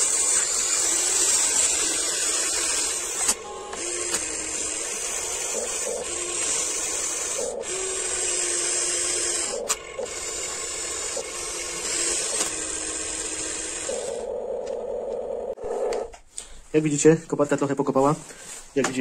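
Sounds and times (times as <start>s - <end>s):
small electric motors whining: 0.0s - 16.1s.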